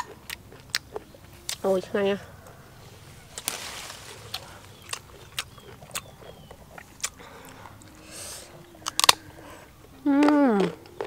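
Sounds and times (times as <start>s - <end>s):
crisp crunch of biting fruit: 3.3s - 7.6s, 8.8s - 9.2s.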